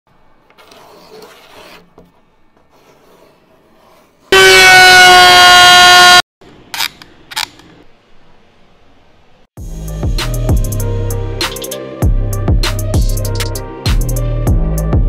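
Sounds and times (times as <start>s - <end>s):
loud horn-like tone: 4.3s - 6.2s.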